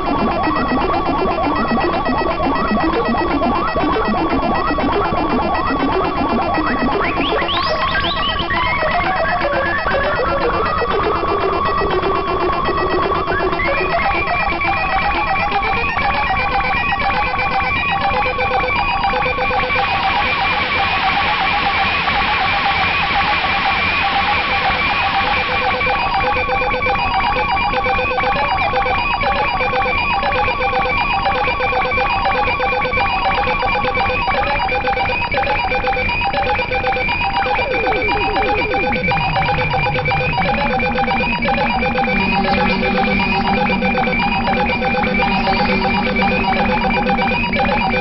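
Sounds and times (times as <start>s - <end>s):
bell-like synthesizer tones: 19.3s - 48.0s
low synthesizer drone: 34.9s - 48.0s.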